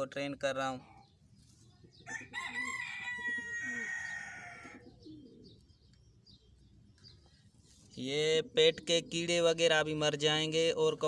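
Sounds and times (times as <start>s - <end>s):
rooster crowing: 2.1s - 4.8s.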